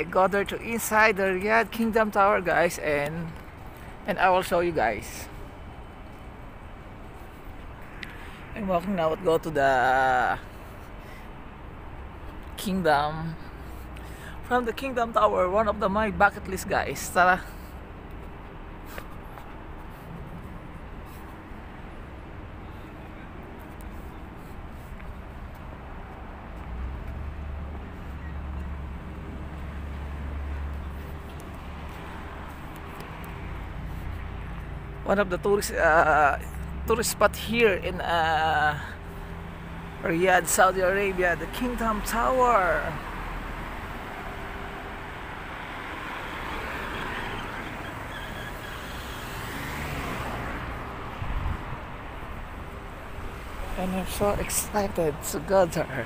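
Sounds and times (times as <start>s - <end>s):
city street traffic: 0.0s - 56.0s.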